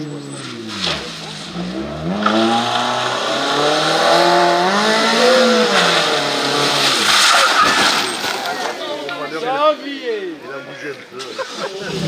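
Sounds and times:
car engine revving hard: 0.5 - 7.2.

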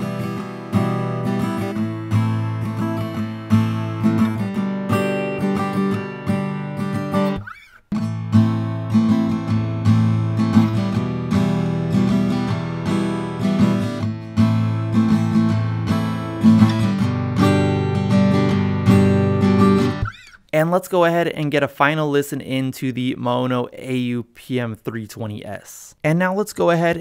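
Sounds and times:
acoustic guitar strumming: 0.0 - 20.5.

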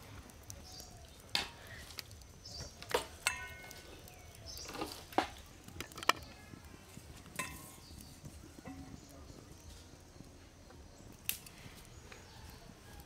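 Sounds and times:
steel bowl and plate clinking: 3.3 - 3.8, 7.4 - 7.9.

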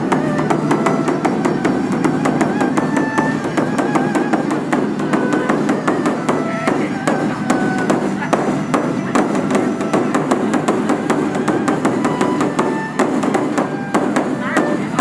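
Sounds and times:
music with clicking percussive beat: 0.0 - 15.0.

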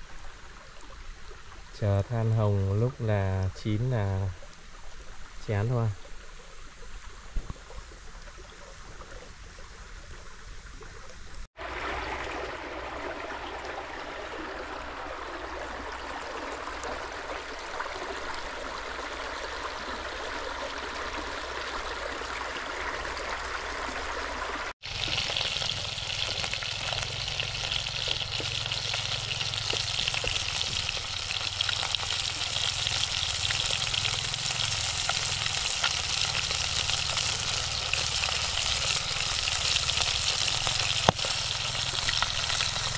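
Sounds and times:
meat sizzling on charcoal grill: 24.8 - 42.9.

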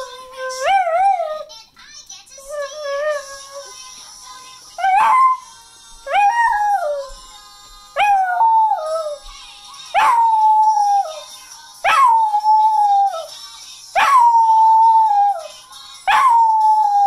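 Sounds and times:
singing from television: 0.0 - 17.0
dog howling: 6.1 - 7.1.

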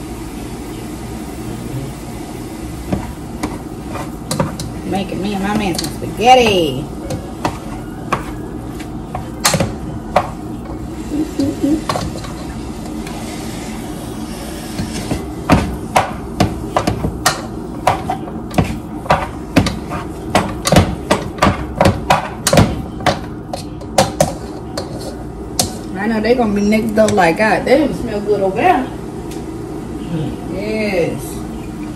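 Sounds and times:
steady hum: 0.0 - 31.9
utensil scraping a frying pan: 3.4 - 4.9, 10.9 - 15.3, 23.5 - 25.9.

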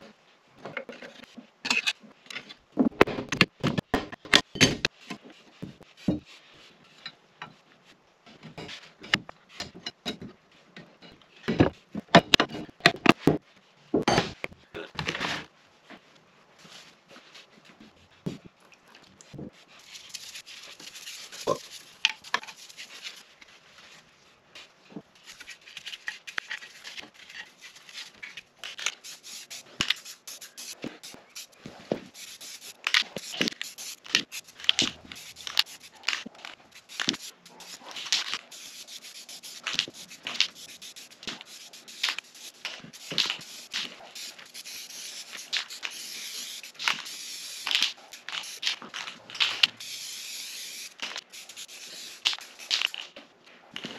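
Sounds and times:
brush scrubbing on metal: 19.5 - 53.0
spray paint hissing: 19.8 - 23.2, 28.7 - 53.1.

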